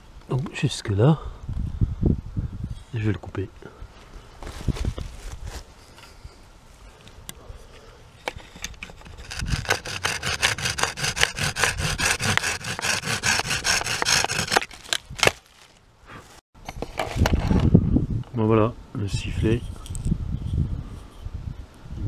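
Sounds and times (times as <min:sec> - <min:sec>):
hand saw cutting wood: 0:08.8 - 0:15.4.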